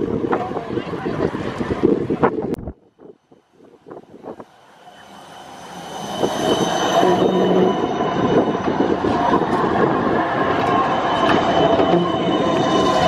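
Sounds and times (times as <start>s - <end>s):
tram rolling noise: 0.0s - 13.0s
high wheel squeal: 4.2s - 13.0s.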